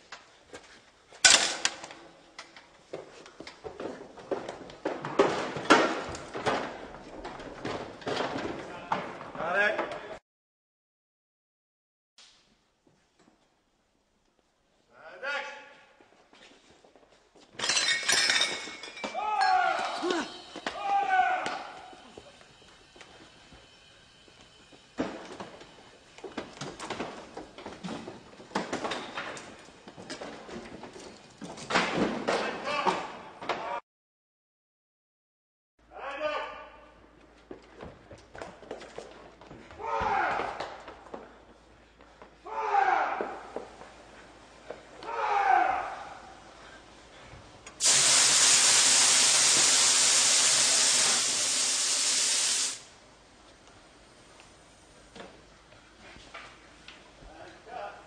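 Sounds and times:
irregular knocks and clattering: 0:02.9 - 0:10.0
pressurised gas hissing: 0:47.7 - 0:53.0.

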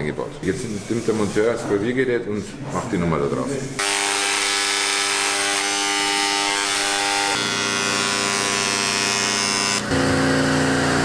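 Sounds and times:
engraving pen buzzing on metal: 0:03.8 - 0:11.0
steady machine hum: 0:03.8 - 0:11.0.

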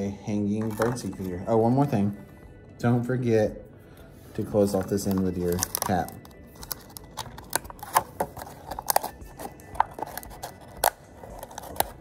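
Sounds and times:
faint background music: 0:00.0 - 0:12.0
plastic bottle crinkling: 0:04.7 - 0:12.0.

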